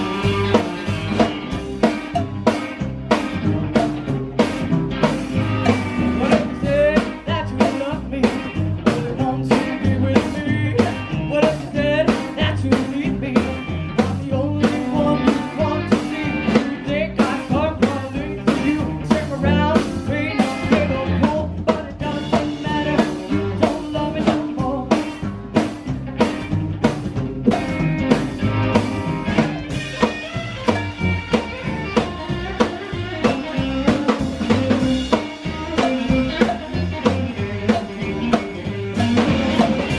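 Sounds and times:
rock and roll band playing: 0.0 - 39.9
woman singing: 6.2 - 16.2.

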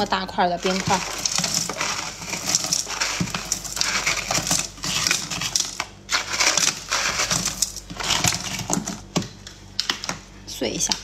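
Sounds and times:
ice crackling and crunching: 0.5 - 9.2.

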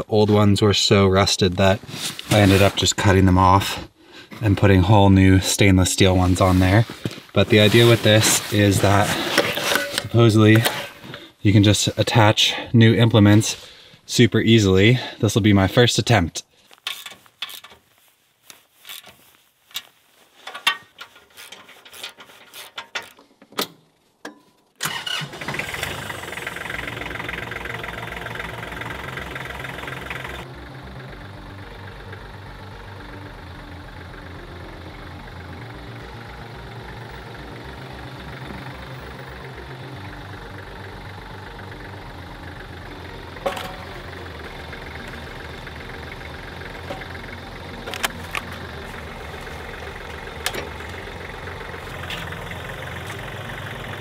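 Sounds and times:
tractor diesel engine idling: 0.0 - 15.8, 24.8 - 54.0
hand tools clinking: 7.8 - 11.3, 18.8 - 23.3, 43.4 - 44.0
sharp metal clank: 43.4 - 44.0.

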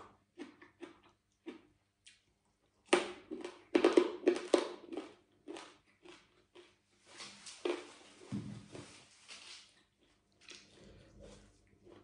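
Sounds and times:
loud crunching chewing: 3.3 - 6.8.

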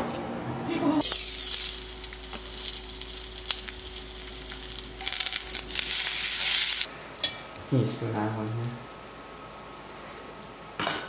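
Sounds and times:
dumplings sizzling in oil: 1.0 - 7.3.

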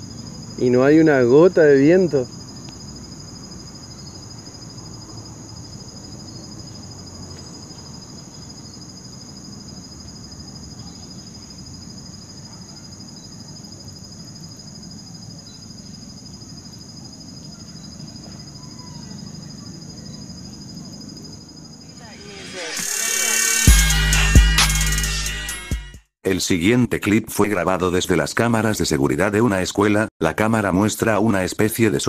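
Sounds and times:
crickets droning: 0.0 - 24.1.

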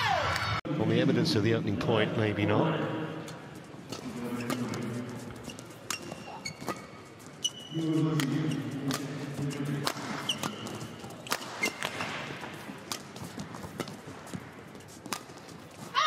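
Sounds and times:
shoes squeaking on court: 3.3 - 16.0
rackets striking shuttlecock: 3.9 - 15.9.

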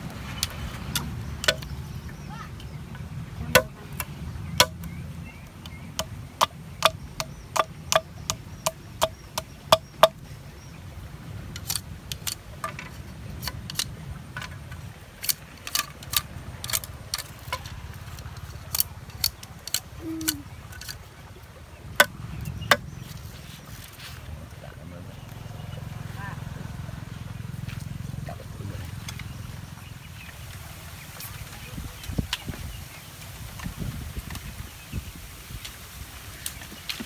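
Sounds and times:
steady low rumble: 0.0 - 35.2
machete chopping wood: 3.5 - 4.9.

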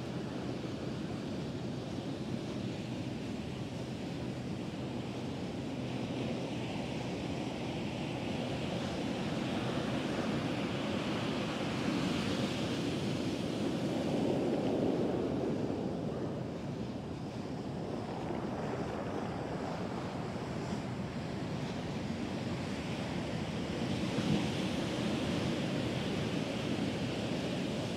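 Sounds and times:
waves breaking on beach: 5.8 - 27.9.

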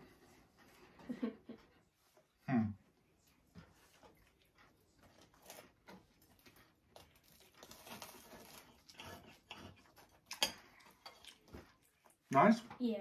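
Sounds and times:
knife and fork cutting pastry: 5.0 - 12.1.

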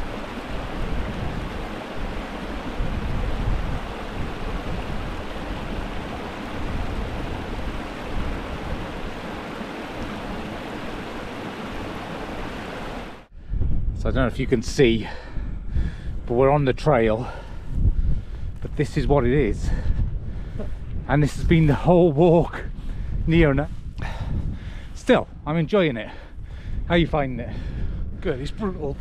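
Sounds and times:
stream rushing over rocks: 0.0 - 13.3
wind buffeting microphone: 0.0 - 29.0.

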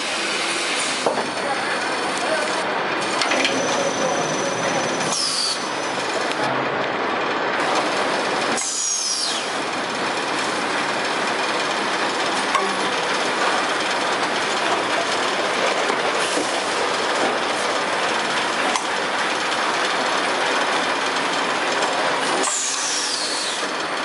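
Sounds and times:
conveyor machinery clatter: 0.0 - 24.0
falling high squeal: 3.5 - 6.0.

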